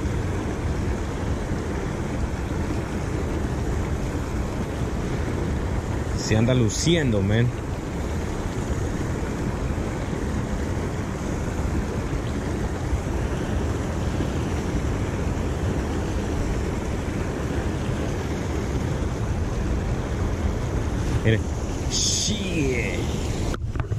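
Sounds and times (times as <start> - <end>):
wind buffeting microphone: 0.0 - 23.9.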